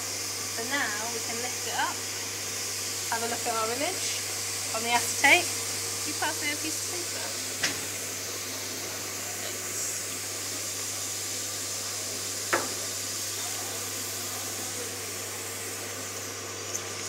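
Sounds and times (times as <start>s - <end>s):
air machinery hissing: 0.0s - 17.0s.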